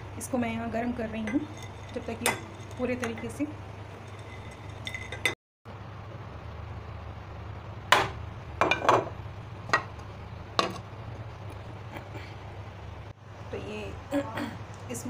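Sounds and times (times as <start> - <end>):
cookware clinking and knocking: 8.0 - 9.1.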